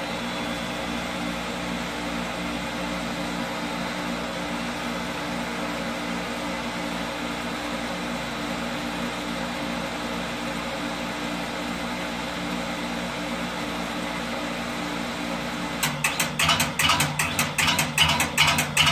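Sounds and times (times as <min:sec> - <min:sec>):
well pump motor humming: 0:13.6 - 0:18.9.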